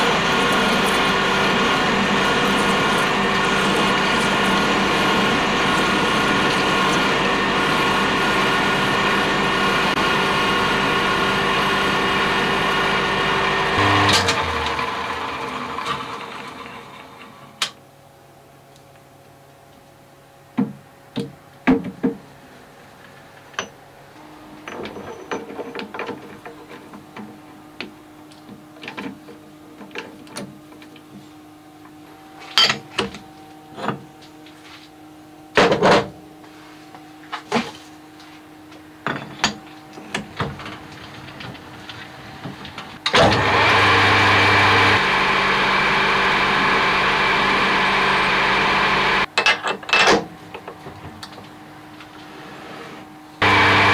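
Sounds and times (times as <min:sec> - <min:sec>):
lathe running: 0:00.0 - 0:17.6, 0:43.0 - 0:49.3, 0:53.4 - 0:53.9.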